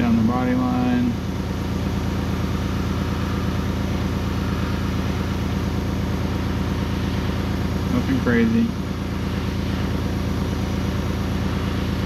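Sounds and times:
compressor pulsing hum: 0.0 - 12.0
airbrush spraying hiss: 2.4 - 12.0.

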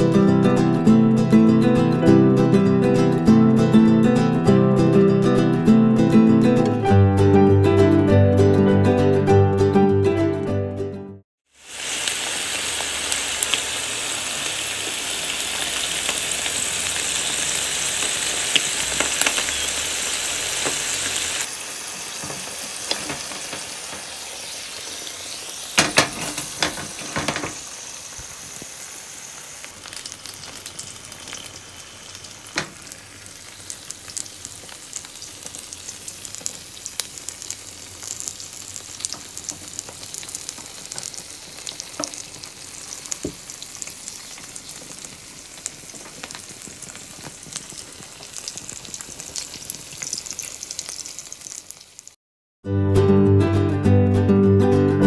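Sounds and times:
food sizzling in sandwich maker: 11.5 - 52.2.

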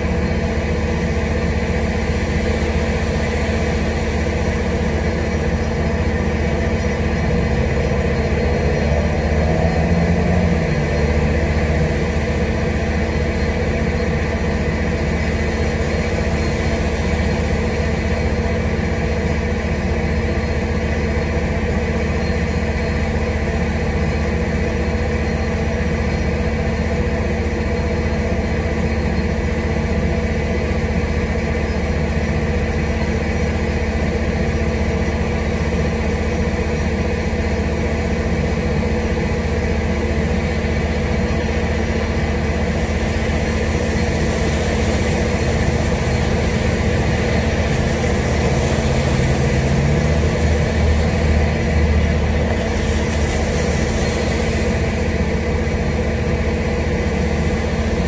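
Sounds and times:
low machine hum: 0.0 - 58.0
heavy rain: 37.3 - 58.0.

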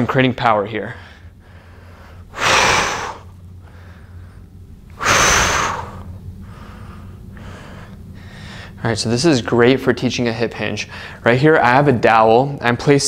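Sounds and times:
man's hard breaths of exertion: 0.9 - 8.8, 10.9 - 11.2.

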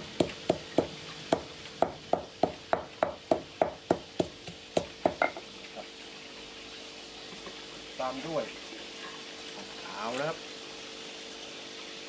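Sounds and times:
pestle thudding in stone mortar: 0.0 - 5.4.

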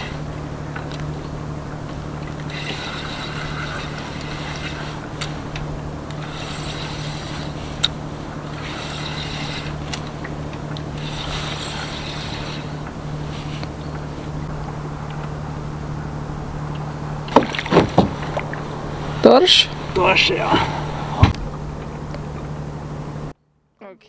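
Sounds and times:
motorboat engine idling: 0.0 - 23.4
fishing reel cranking: 1.7 - 13.8
sharp reel clicks: 2.2 - 13.8.

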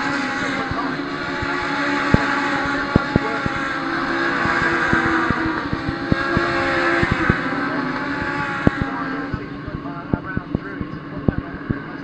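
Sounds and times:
race car engines passing: 0.0 - 12.0
sharp clicks: 1.4 - 3.8, 4.4 - 7.5.

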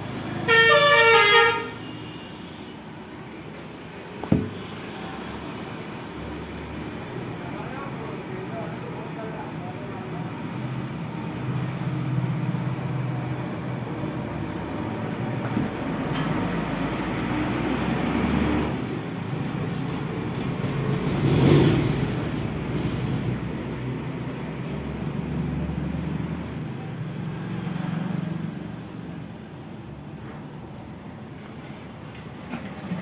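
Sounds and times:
traffic rumble: 0.0 - 33.0
vehicle passing by: 14.4 - 19.3, 20.4 - 29.2.

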